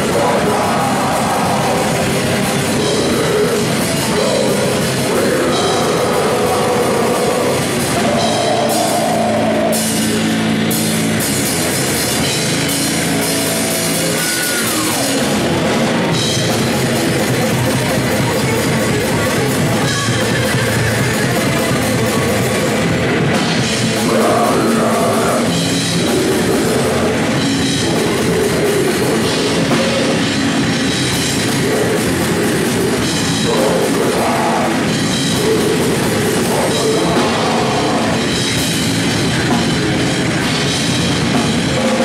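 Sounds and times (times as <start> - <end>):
death metal band playing: 0.0 - 42.0.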